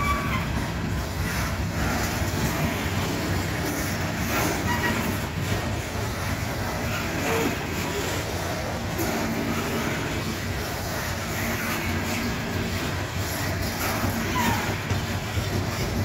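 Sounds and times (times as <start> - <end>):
freight train wheels on rails: 0.0 - 16.0.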